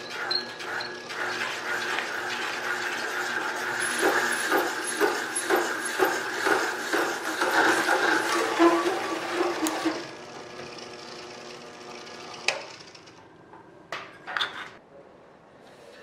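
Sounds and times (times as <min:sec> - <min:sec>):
cutter cutting metal sheet: 0:00.0 - 0:10.2
milling spindle running: 0:00.0 - 0:13.2.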